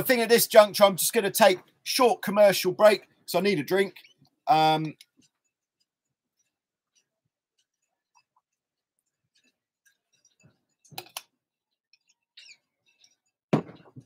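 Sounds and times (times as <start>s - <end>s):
bottle knocks: 13.5s - 14.0s.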